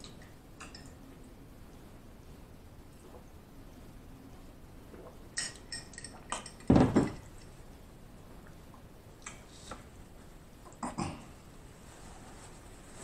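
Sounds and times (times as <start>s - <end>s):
drinking glass clinking: 5.3s - 7.6s.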